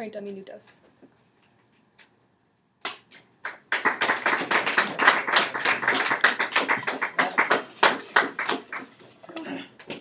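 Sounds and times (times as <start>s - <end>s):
people clapping: 2.8s - 9.2s.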